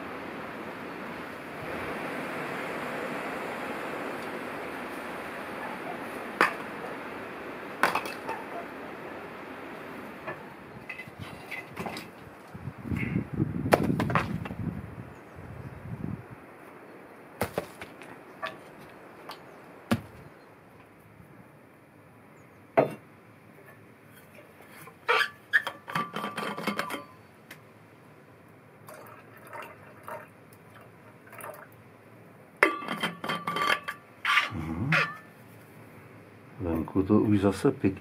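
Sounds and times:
stones knocking and clinking: 19.9s - 20.2s.

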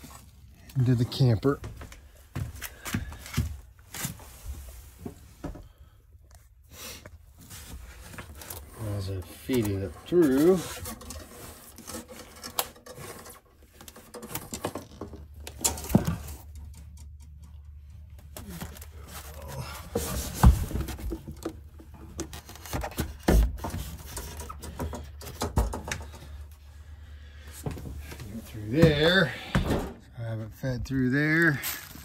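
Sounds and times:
plastic conduit scraping: 7.6s - 17.0s, 18.3s - 26.4s.

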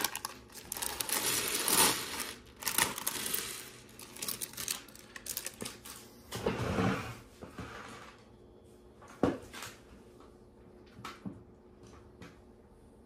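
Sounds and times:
plastic pieces clicking: 0.0s - 5.8s.

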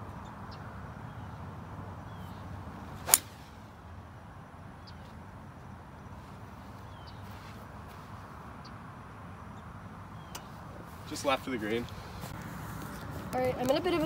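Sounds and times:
golf club striking ball: 3.0s - 3.6s
golf club swing whoosh: 3.0s - 3.7s.

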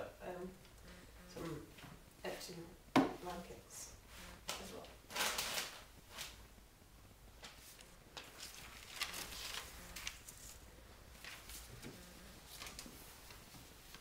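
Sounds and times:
paper and felt rustling: 4.1s - 6.4s, 7.4s - 14.0s.

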